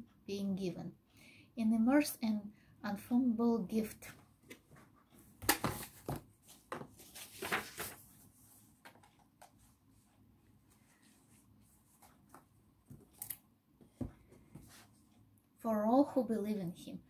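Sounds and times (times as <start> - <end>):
book pages rustling: 5.6 - 10.1, 10.7 - 13.4.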